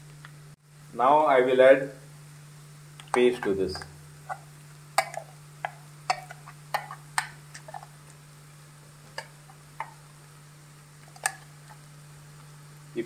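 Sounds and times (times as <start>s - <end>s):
steady low hum: 0.0s - 13.0s
hot oil spitting: 3.0s - 12.5s.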